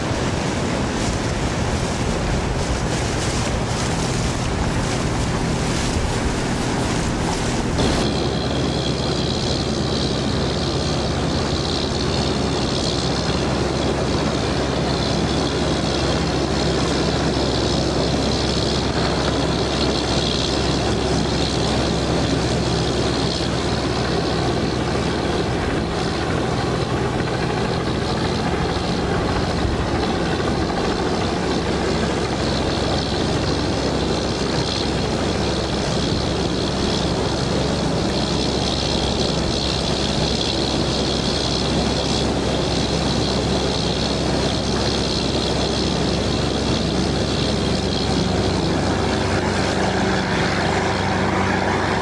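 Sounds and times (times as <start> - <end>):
water rushing past: 0.0 - 8.7
boat engine drone: 0.0 - 52.0
wind buffeting microphone: 0.0 - 52.0.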